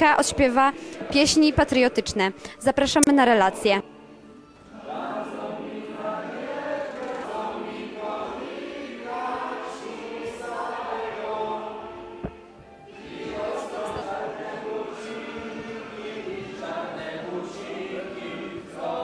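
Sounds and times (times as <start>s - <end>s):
group singing a patriotic song: 0.1s - 19.0s.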